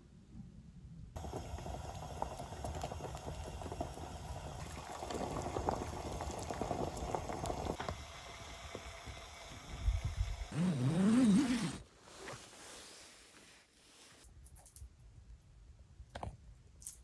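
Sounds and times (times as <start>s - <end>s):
liquid boiling in a saucepan: 1.2s - 10.6s.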